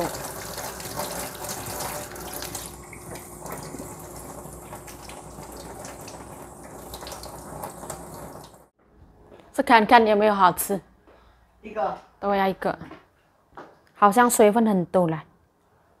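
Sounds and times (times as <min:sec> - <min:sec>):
tap water splashing into sink: 0:00.0 - 0:08.6.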